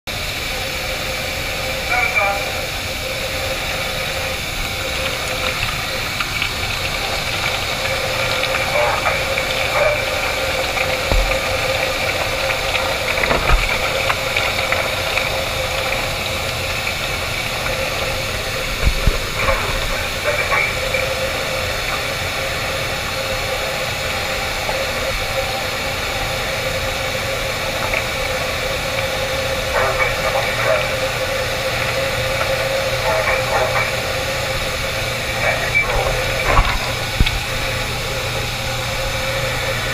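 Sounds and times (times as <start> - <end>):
machinery drone: 0.1 - 39.9.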